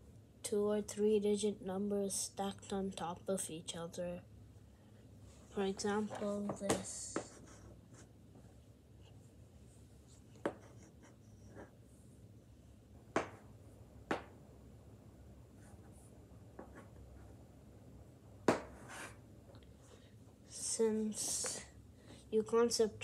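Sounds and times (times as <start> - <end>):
chalk tapping: 6.2 - 8.1, 10.1 - 11.7
chalk scratching on chalkboard: 18.8 - 19.2.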